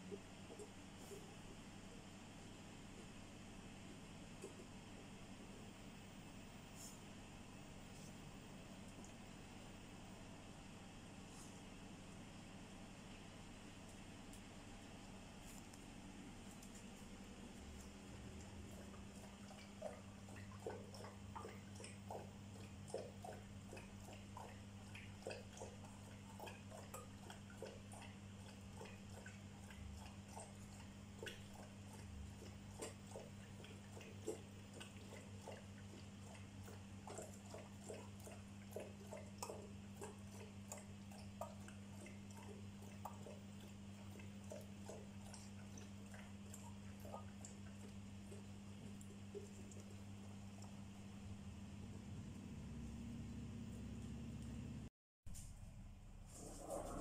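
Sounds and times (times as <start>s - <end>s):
dogs eating and drinking from bowls: 0.0s - 1.9s, 13.2s - 55.5s, 56.2s - 57.0s
steady low hum: 0.0s - 57.0s.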